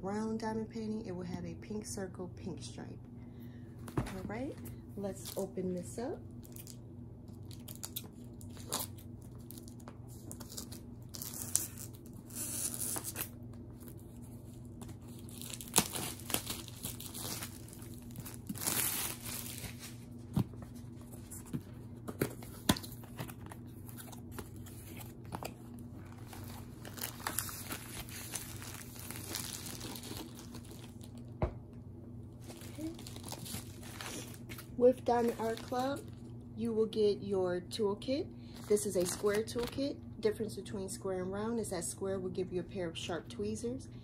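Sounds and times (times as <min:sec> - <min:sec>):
plastic wrap crinkling: 0:06.4 - 0:06.8, 0:07.4 - 0:20.3, 0:22.6 - 0:31.3, 0:32.4 - 0:36.3, 0:38.5 - 0:39.8.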